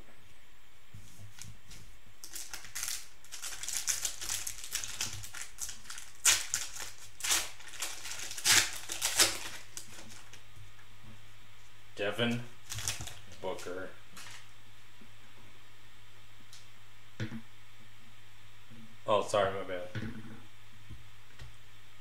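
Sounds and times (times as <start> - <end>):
plastic wrapper crinkling: 2.2 - 10.4, 12.6 - 14.5.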